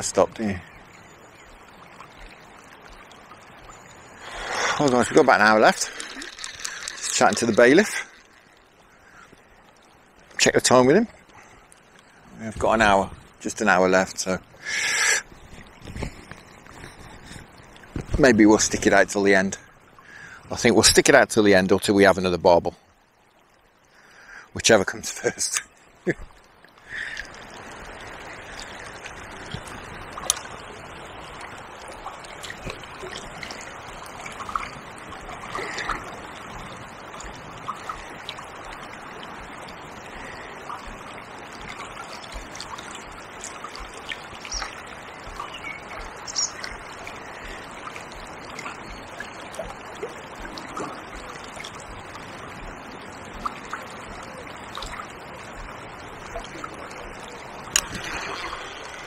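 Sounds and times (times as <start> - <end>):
small water splashes: 0.0 - 21.2, 23.0 - 59.0
shallow river flowing: 0.0 - 59.0.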